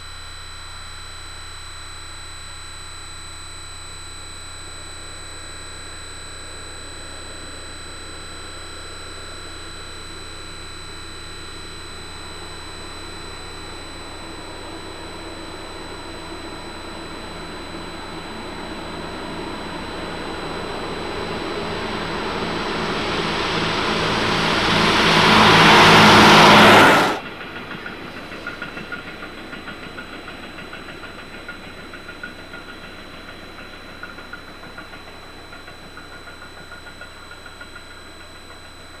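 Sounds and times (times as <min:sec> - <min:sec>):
diesel railcar passing: 0:23.4 - 0:34.2.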